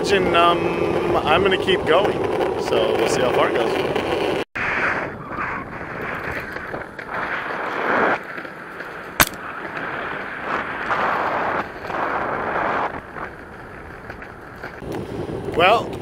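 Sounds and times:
skateboard wheels rolling on pavement: 0.0s - 16.0s
wind on microphone: 0.8s - 16.0s
sharp click: 9.2s - 9.4s.

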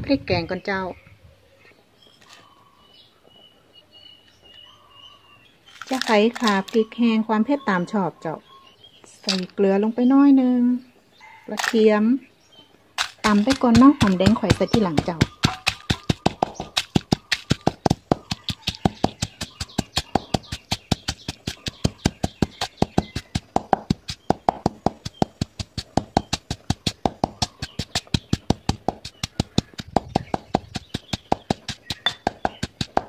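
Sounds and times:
pestle pounding in stone mortar: 13.0s - 33.0s.

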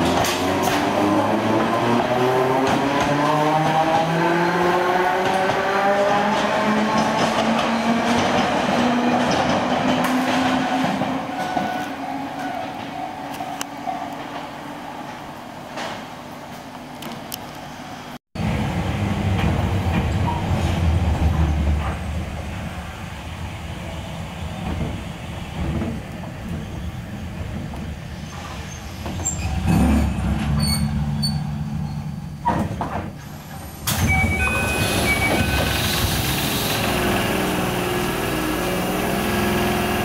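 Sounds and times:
train rumbling on rails: 0.0s - 40.0s.

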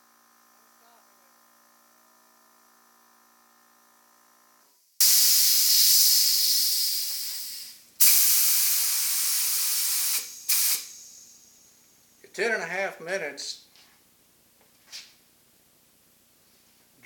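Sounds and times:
spray gun air hissing: 5.0s - 11.6s.

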